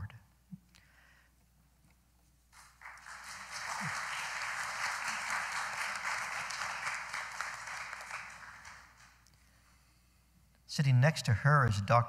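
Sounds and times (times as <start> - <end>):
audience applauding: 2.6 - 9.2.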